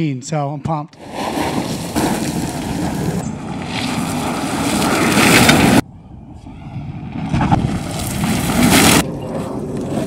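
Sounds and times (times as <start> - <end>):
tyres churning on loose dirt: 1.0 - 5.8.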